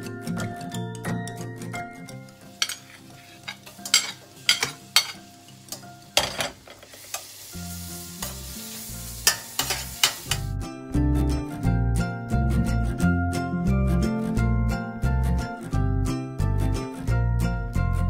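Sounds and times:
butter sizzling: 2.2 - 10.5
metal spoon clinking and scraping: 2.6 - 7.3, 9.2 - 10.5.

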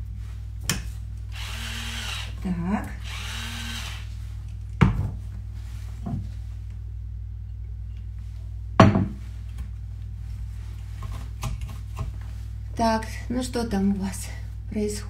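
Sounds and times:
low steady hum: 0.0 - 15.0
electric pepper mill grinding: 1.3 - 2.4, 3.0 - 4.1
objects knocking on counter: 8.8 - 9.2.

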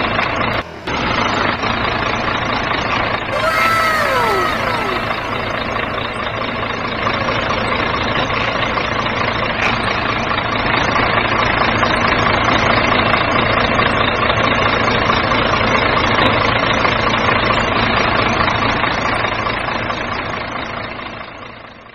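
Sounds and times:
truck engine idling: 0.0 - 3.3, 5.2 - 16.2.

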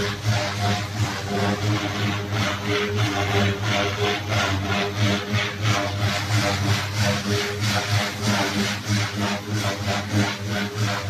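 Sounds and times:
rc helicopter rotor hum: 0.0 - 11.0.

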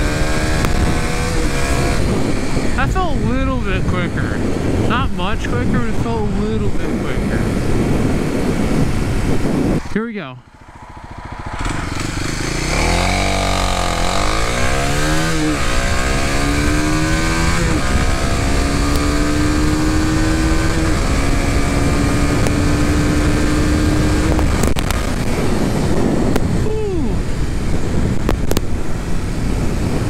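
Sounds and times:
motorcycle engine accelerating: 0.0 - 30.0.

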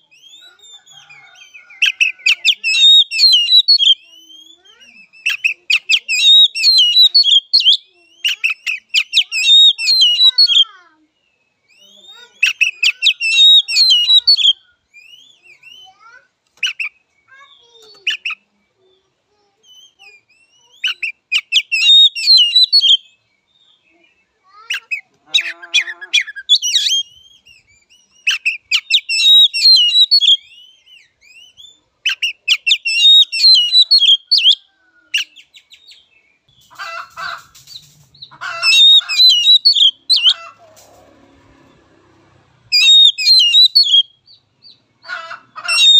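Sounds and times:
bird whistling and trilling: 0.0 - 10.6, 12.4 - 15.9, 19.7 - 23.2, 24.7 - 34.6, 37.7 - 40.4, 42.7 - 44.8.

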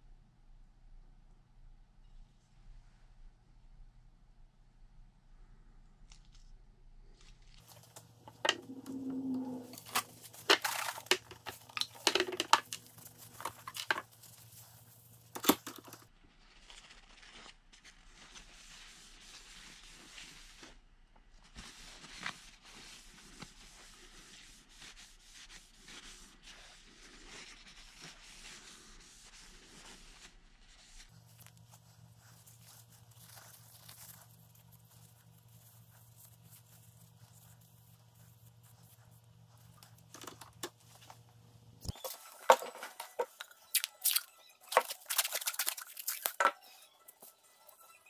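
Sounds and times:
paper towel rubbing on wood: 7.6 - 11.0, 17.9 - 20.8, 21.5 - 40.1
handling clicks and knocks: 9.8 - 14.0.

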